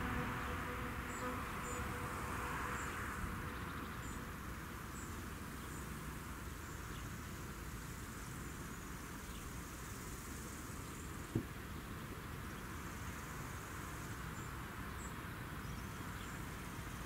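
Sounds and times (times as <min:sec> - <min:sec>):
short sharp thump: 0:11.3 - 0:11.5.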